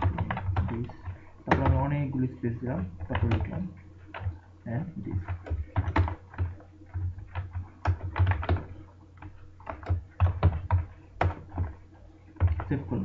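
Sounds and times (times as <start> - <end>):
keyboard key clicks: 1.5 - 1.8.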